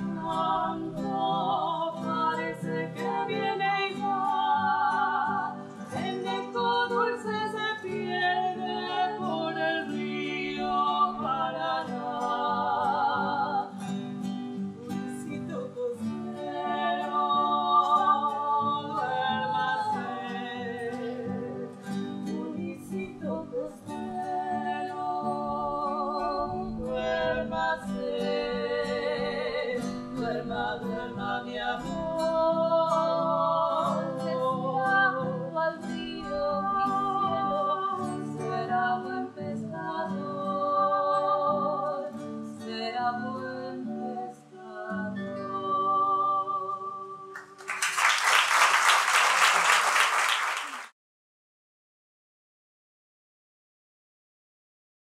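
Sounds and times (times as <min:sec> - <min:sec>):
women singing a lullaby: 0:00.0 - 0:47.5
fingerpicked acoustic guitar: 0:00.0 - 0:47.6
audience applauding: 0:47.4 - 0:50.9.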